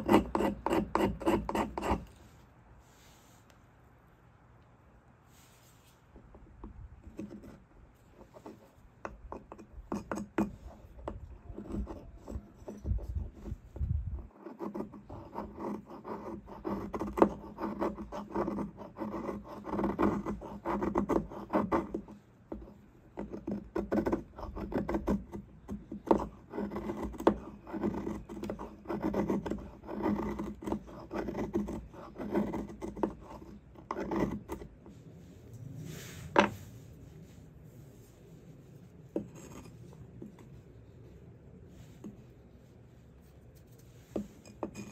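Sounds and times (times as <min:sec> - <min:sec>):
knife scraping wood: 0:00.0 - 0:02.4, 0:23.2 - 0:34.9, 0:39.1 - 0:40.5, 0:43.6 - 0:44.9.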